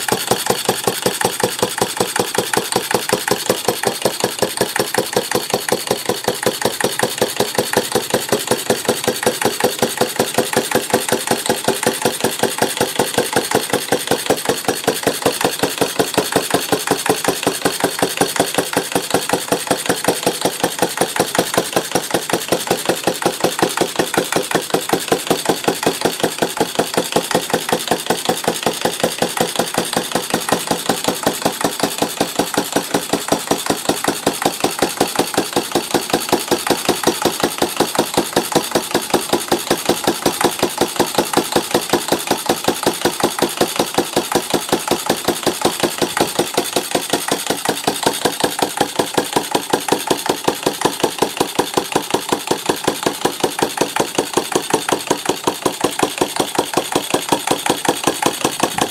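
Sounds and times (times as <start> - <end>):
single-cylinder engine running: 0.0 - 58.9.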